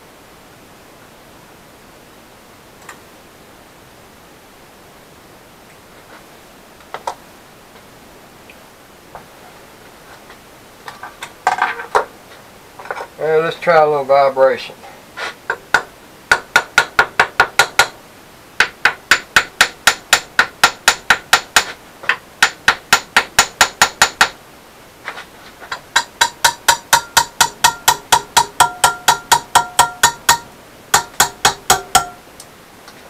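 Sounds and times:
small hammer tapping metal: 15.5s - 18.0s, 18.6s - 24.4s, 25.7s - 32.2s.

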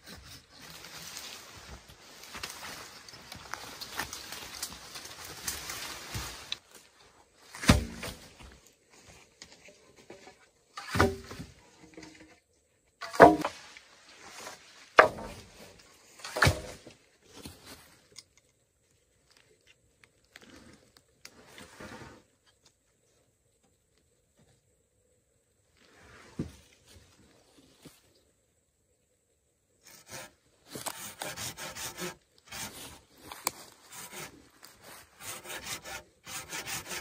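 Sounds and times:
digging tool thudding into earth: 7.6s - 8.2s, 10.8s - 11.5s, 16.2s - 16.9s.

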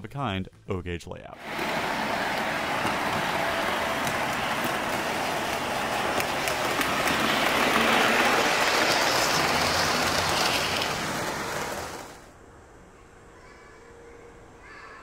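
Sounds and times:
model train rolling rumble: 1.4s - 12.3s.

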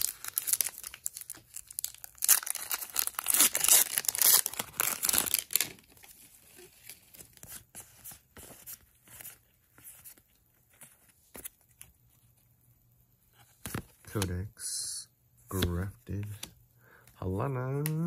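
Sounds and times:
foil wrapper tearing and crinkling: 0.0s - 6.0s
cards being handled: 15.5s - 16.6s.

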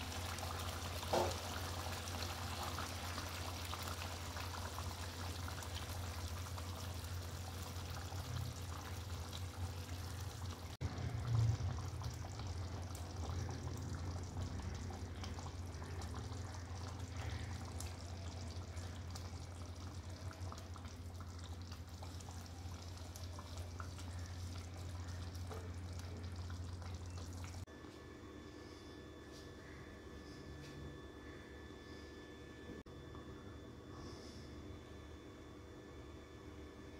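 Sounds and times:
curry bubbling in a pan: 0.0s - 27.7s
steady low hum: 0.0s - 36.9s.

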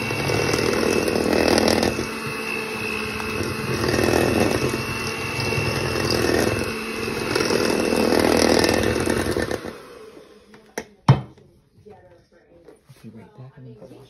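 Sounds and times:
electric hand mixer running: 0.0s - 11.0s.

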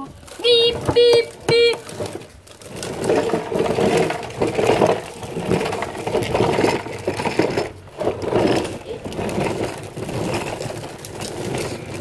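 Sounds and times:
plastic toy wheels rolling on concrete: 0.0s - 12.0s.

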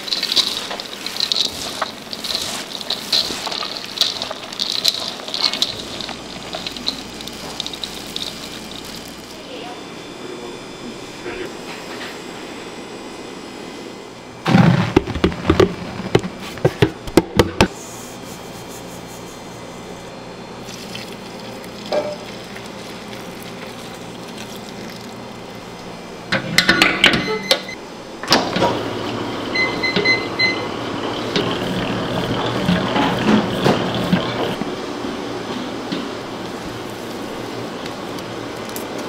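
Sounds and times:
utensils knocking and clattering: 0.0s - 9.3s
steady background hum: 0.0s - 39.0s.

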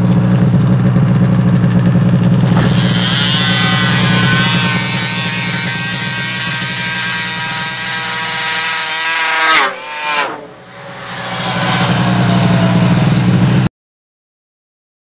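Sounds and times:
snowmobiles passing at full throttle: 0.0s - 13.7s.

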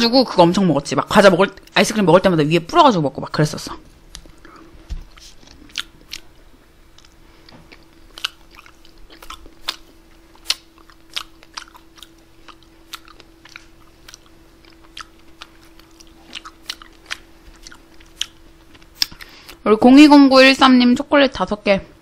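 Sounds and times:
faint steady hum: 0.0s - 22.0s
wet chewing and lip-smacking: 4.1s - 19.6s.

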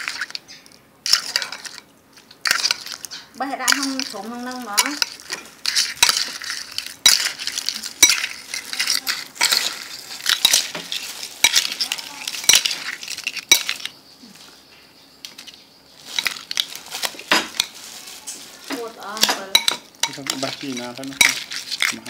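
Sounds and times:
wet scraping of shells: 0.0s - 14.6s, 15.2s - 22.0s
spoon clinking against bowl: 2.5s - 13.9s, 19.2s - 22.0s.

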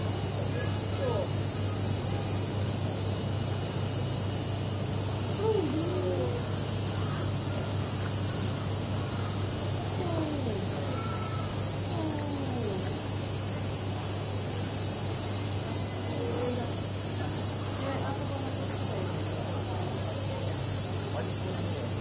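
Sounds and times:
cicadas chorus: 0.0s - 22.0s
distant voices calling out: 5.2s - 13.8s.

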